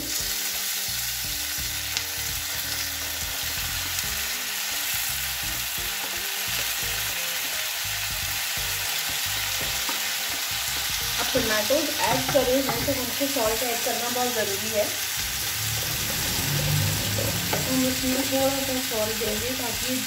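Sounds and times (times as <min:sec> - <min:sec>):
onions sizzling in oil: 0:00.0 - 0:20.0
wooden spatula scraping and stirring: 0:15.3 - 0:18.0.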